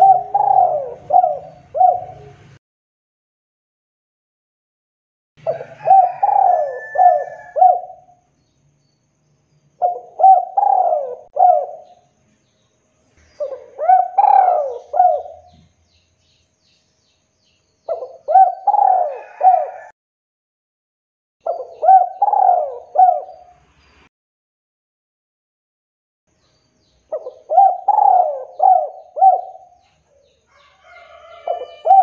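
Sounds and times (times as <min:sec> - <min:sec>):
dove cooing: 0:00.0 - 0:02.6, 0:05.4 - 0:08.2, 0:09.8 - 0:12.0, 0:13.4 - 0:15.7, 0:17.9 - 0:19.9, 0:21.4 - 0:23.5, 0:27.1 - 0:32.0.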